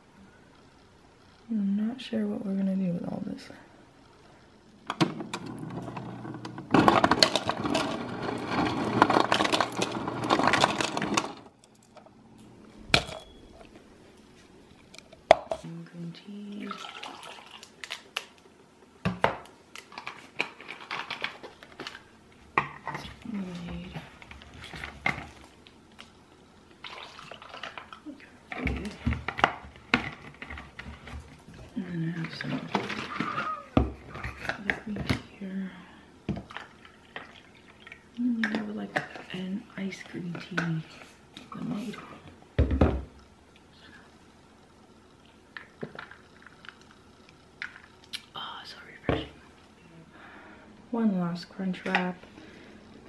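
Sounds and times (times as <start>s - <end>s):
ice dispenser humming: 4.3s - 13.8s, 16.3s - 18.3s, 19.0s - 35.3s
ice cubes clattering into plastic cup: 6.7s - 11.4s
liquid pouring: 16.6s - 17.8s, 26.8s - 28.0s.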